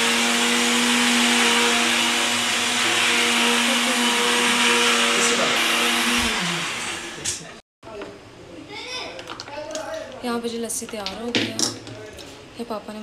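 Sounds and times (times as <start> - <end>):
blender running: 0.0 - 7.6.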